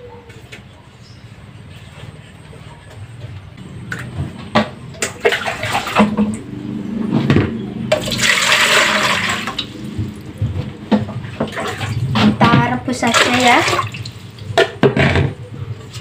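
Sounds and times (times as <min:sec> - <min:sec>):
water splashing: 0:05.0 - 0:06.6, 0:07.9 - 0:10.4, 0:11.2 - 0:14.6
water pouring into a metal pot: 0:07.9 - 0:09.8.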